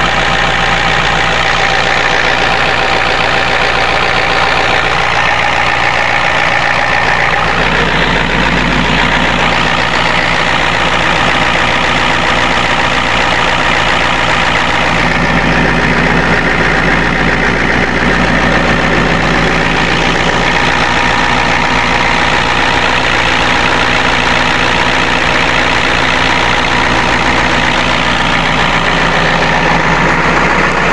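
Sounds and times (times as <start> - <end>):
diesel engine idling: 0.0 - 30.9.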